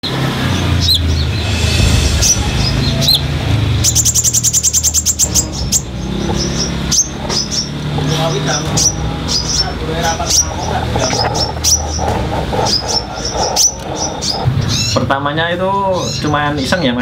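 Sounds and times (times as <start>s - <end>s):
bird chirping: 0.5s - 15.2s
fast bird trill: 8.7s - 15.2s.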